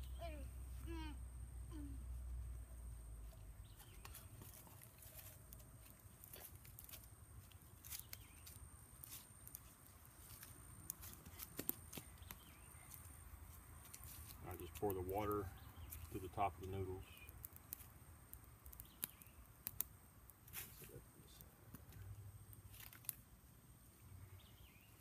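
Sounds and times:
faint clicks and ticks: 16.0s - 20.5s.

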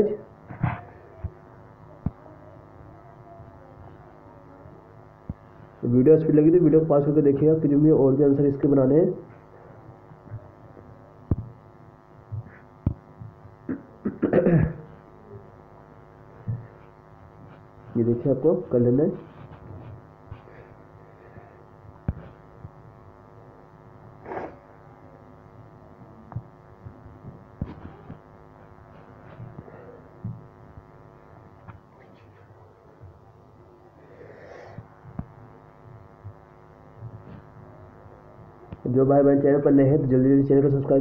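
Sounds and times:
electrical hum: 0.0s - 41.0s
soft low thumps: 11.3s - 13.7s, 16.4s - 17.5s, 29.3s - 30.9s.

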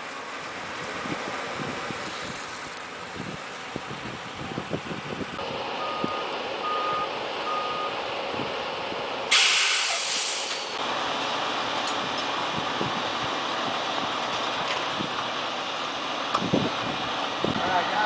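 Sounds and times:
reversing alarm beeps: 5.8s - 8.0s
loud hiss of released air: 9.3s - 10.8s.

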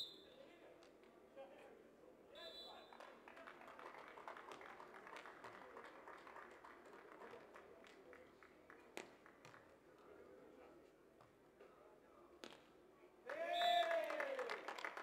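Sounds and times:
light taps and claps: 2.9s - 10.2s, 12.4s - 15.0s.

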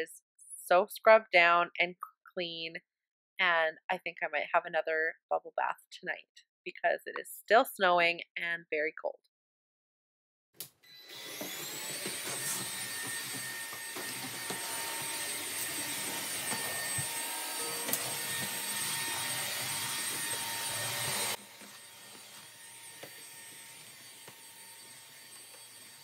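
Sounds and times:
stick vacuum running: 10.9s - 26.0s.

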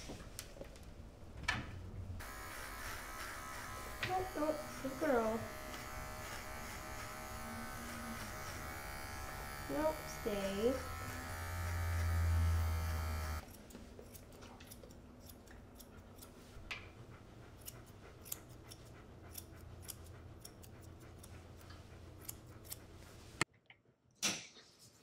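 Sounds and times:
electric clippers buzzing: 2.2s - 13.4s
scissors snipping fur: 2.8s - 16.4s, 17.6s - 22.8s.

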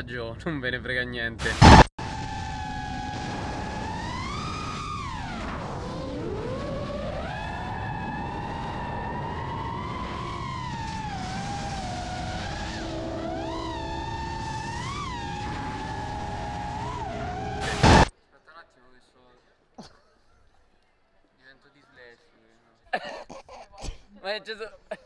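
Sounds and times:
high-revving motor whining: 1.4s - 18.1s.

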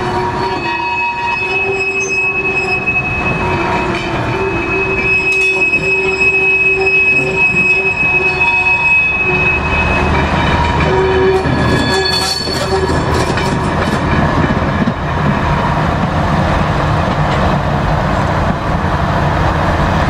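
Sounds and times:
wheels squealing on rails: 0.0s - 15.0s
train rumbling past: 0.0s - 20.0s.

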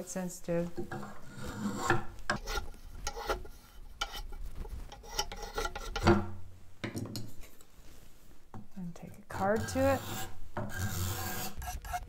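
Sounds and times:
spokeshave scraping wood: 0.9s - 6.2s, 9.0s - 12.0s.

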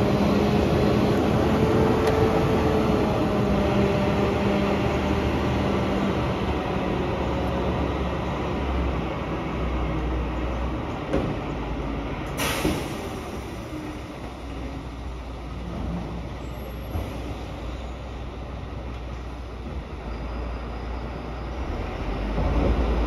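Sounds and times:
diesel truck engine rumbling: 0.0s - 23.0s
short hiss of air: 12.4s - 13.6s.

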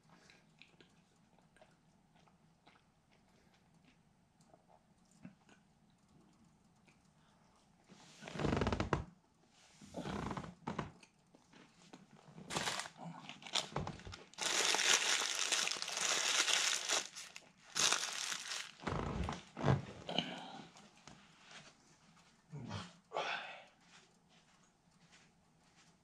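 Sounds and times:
dull handling sounds: 12.4s - 19.5s
paper wrapper crumpling: 12.5s - 18.9s.

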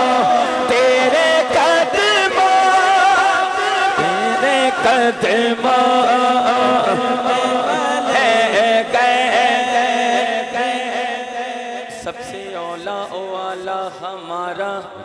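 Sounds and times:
person singing unaccompanied: 0.0s - 11.3s.

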